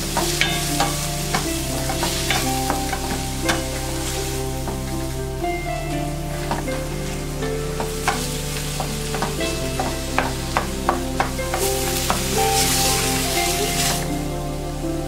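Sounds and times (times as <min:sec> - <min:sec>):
food sizzling in a pan: 0:00.0 - 0:05.2, 0:05.8 - 0:14.3.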